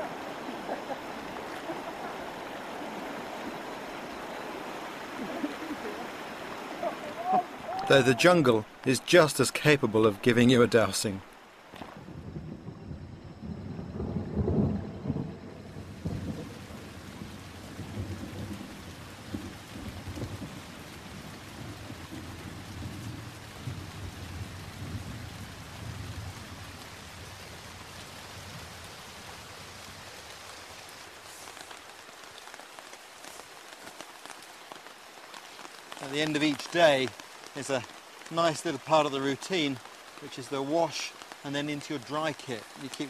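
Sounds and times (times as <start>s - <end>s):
heavy rain pouring: 0.0s - 43.0s
thunder rumbling: 11.8s - 28.8s.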